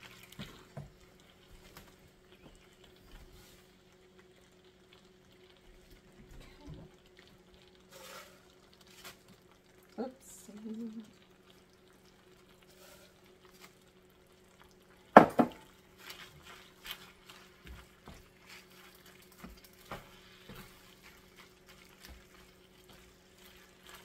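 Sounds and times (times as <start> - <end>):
wooden spoon scraping a pan: 7.9 - 9.2, 12.7 - 13.7, 15.4 - 24.0.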